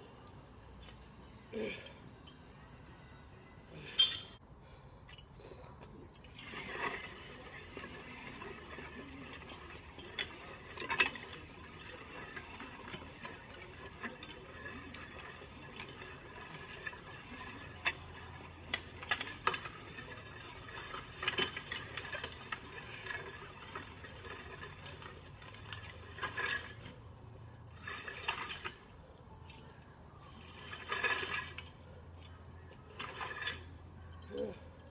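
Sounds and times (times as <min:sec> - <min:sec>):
sled scraping over asphalt: 0:06.3 - 0:33.9.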